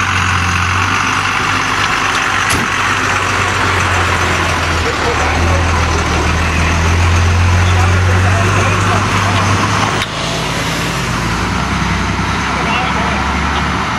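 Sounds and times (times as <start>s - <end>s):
diesel truck engine running slowly: 0.0s - 13.9s
sharp click: 2.5s - 2.8s.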